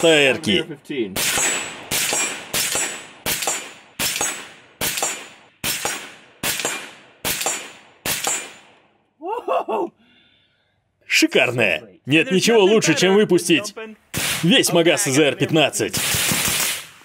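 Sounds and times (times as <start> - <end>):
rifle shots with echo: 1.2 - 8.9, 14.1 - 14.7, 15.9 - 17.0.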